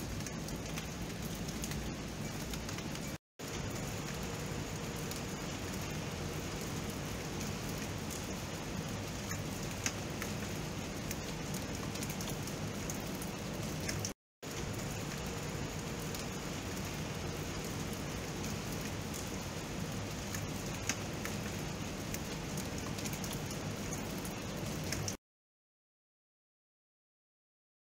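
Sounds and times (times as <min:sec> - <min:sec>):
raindrops ticking: 0:00.0 - 0:25.2
steady rain falling: 0:00.0 - 0:25.2.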